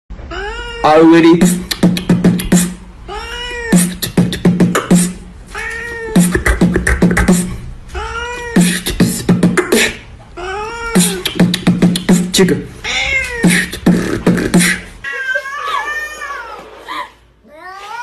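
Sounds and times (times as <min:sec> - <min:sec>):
cat meowing: 0:00.3 - 0:01.3, 0:03.1 - 0:03.9, 0:05.5 - 0:06.3, 0:07.9 - 0:08.7, 0:10.4 - 0:11.3, 0:12.8 - 0:13.6
beatboxed clicks and thumps: 0:01.4 - 0:02.8, 0:03.7 - 0:05.2, 0:06.2 - 0:07.6, 0:08.6 - 0:10.1, 0:10.9 - 0:12.6, 0:13.4 - 0:14.9.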